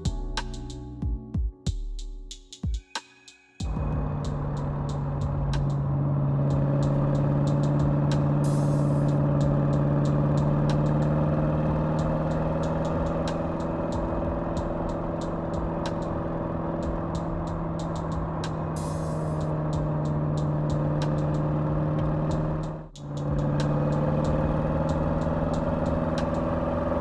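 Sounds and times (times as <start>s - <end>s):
car engine cruising: 3.6s - 27.0s
road noise: 3.6s - 27.0s
light ticks: 6.5s - 11.2s.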